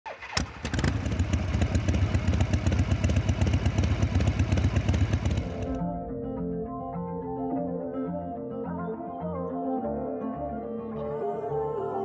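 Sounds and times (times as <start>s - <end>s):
motorcycle engine running: 0.2s - 5.8s.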